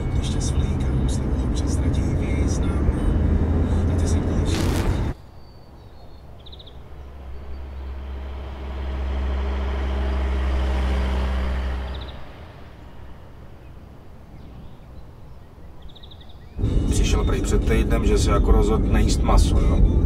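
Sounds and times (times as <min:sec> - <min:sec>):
car driving past: 0:06.9 - 0:14.0.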